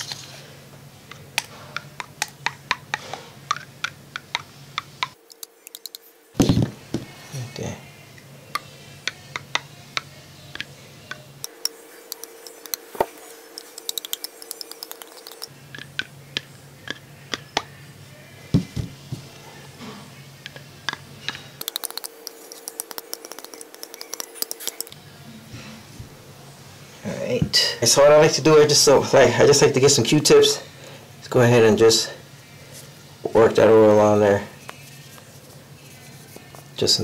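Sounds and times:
small clicks and taps of metal parts: 1.4 - 6.0, 9.1 - 12.8, 13.6 - 17.0, 20.5 - 24.9.

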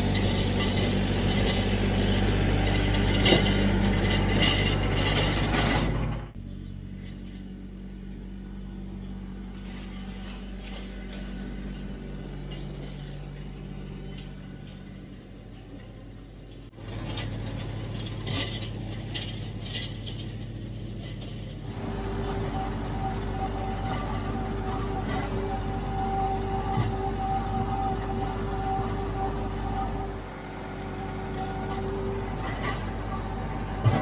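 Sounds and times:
diesel tractor clattering: 0.0 - 7.6, 9.1 - 34.0
steady whine: 16.3 - 34.0.

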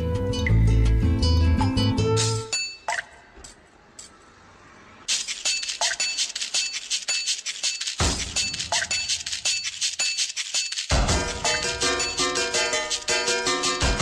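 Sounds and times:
deep bass beat: 13.7 - 14.0.

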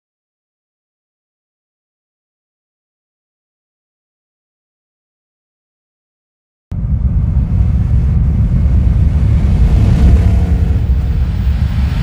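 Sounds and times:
loud deep rumble: 6.7 - 12.0.

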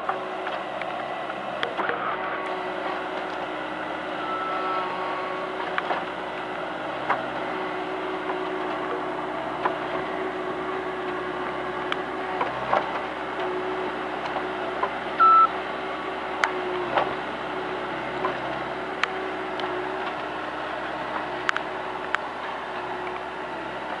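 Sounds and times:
diesel engine running: 0.0 - 24.0
short beep: 4.2 - 4.9, 15.2 - 15.5.

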